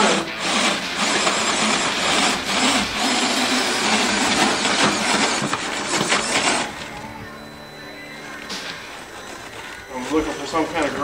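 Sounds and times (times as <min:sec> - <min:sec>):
tires scraping on wood: 0:00.0 - 0:06.7
rc truck drive running: 0:00.0 - 0:07.7.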